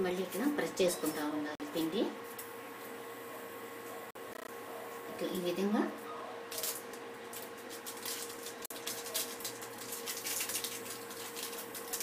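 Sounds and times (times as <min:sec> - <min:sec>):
aluminium foil crinkling: 0:06.5 - 0:12.0.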